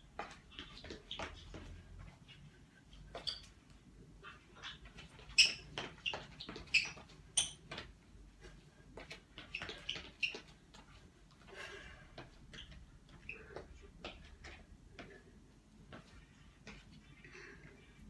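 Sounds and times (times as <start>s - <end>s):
shoes squeaking on tiled floor: 0.0s - 18.0s.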